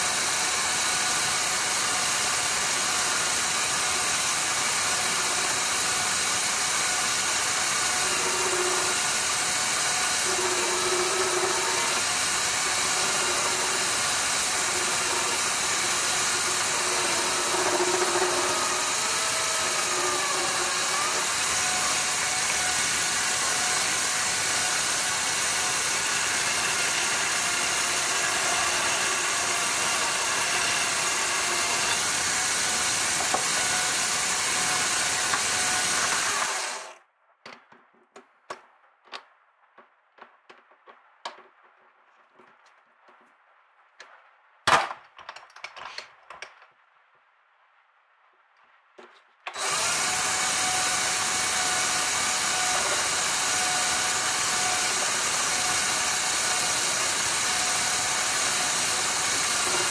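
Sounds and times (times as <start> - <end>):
lathe tool cutting hum: 0.0 - 36.9, 49.5 - 59.9
lathe motor whine: 0.0 - 37.0, 49.5 - 59.9.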